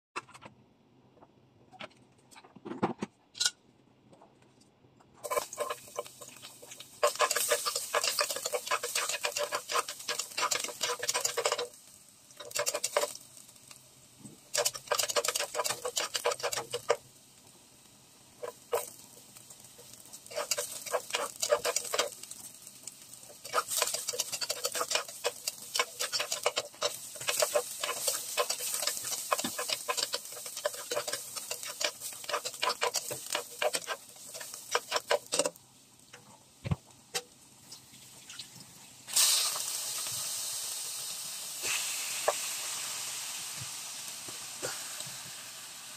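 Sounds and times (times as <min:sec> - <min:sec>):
spatula scraping a nonstick pot: 0:05.2 - 0:11.7, 0:12.4 - 0:13.1, 0:14.5 - 0:17.0, 0:20.2 - 0:22.3, 0:23.3 - 0:35.6.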